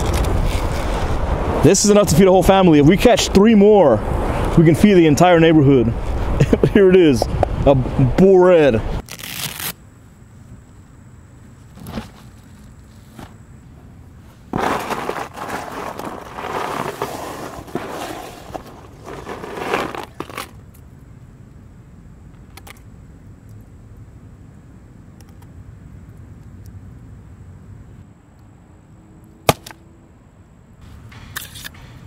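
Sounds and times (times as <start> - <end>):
ice cubes crunching and scraping: 14.6 - 20.6.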